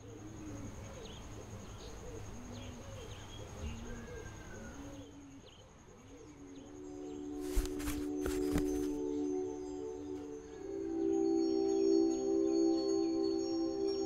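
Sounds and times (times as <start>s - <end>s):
doves cooing: 0.0s - 9.3s
small birds chirping faintly: 0.0s - 14.0s.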